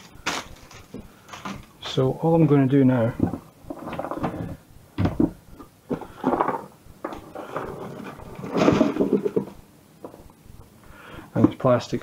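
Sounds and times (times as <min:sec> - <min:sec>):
cupboard opening: 0:03.1 - 0:05.4, 0:06.0 - 0:09.6.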